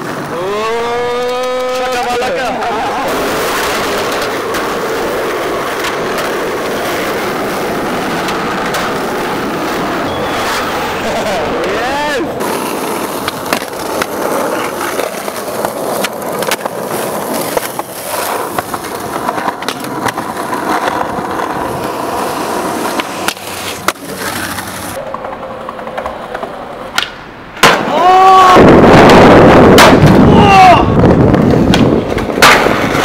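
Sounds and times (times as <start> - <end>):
skateboard clacks: 0.0 - 28.4, 29.0 - 33.0
skateboard wheels rolling: 0.0 - 33.0.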